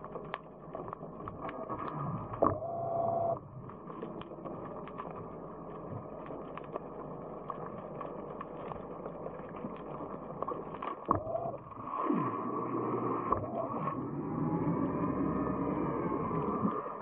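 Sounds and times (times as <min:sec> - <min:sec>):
small clicks: 0:00.0 - 0:12.4
muffled water noise: 0:00.0 - 0:17.0.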